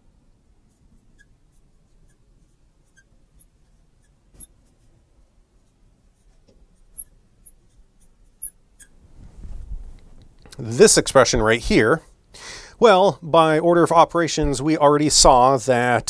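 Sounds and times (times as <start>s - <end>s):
marker writing on glass: 0.7s - 4.6s, 6.1s - 9.0s
marker tip squeaks: 1.0s - 1.4s, 2.8s - 4.5s, 6.8s - 9.0s.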